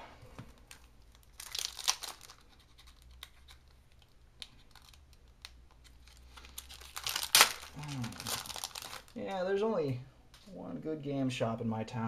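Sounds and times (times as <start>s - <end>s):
foil wrapper crinkling: 0.6s - 9.3s.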